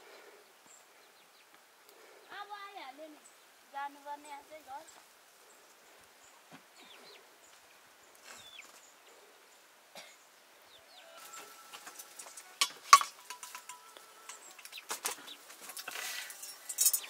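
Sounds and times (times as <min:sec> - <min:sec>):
metal pots and utensils clattering: 0:11.2 - 0:17.0
sharp metallic clanks: 0:11.3 - 0:17.0.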